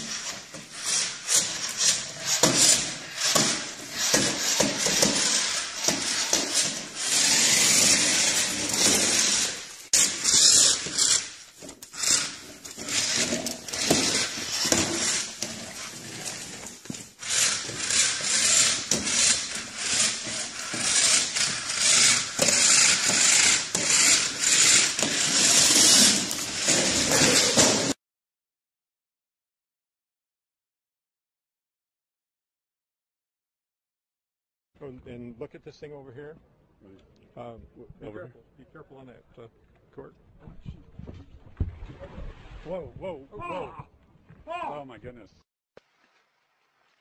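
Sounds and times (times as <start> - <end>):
toy car motor whirring: 0.0 - 27.8.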